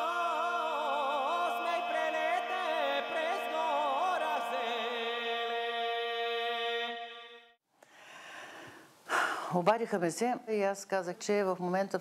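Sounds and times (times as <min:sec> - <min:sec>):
wavering melody with vibrato: 0:00.0 - 0:07.6.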